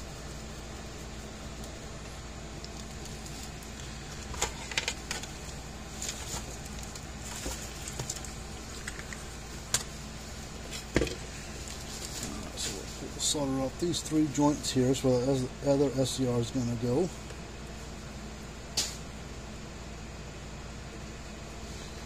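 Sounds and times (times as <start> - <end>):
steady background hum: 0.0 - 22.0.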